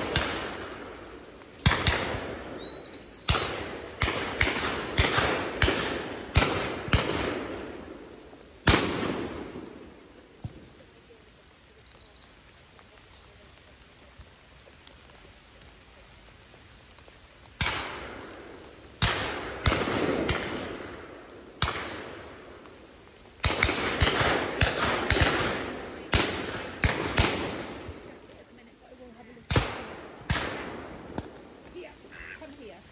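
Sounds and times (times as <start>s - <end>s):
shotguns firing with echo: 0.0s - 2.7s, 3.3s - 10.0s, 17.6s - 22.4s, 23.4s - 28.1s, 29.5s - 31.5s.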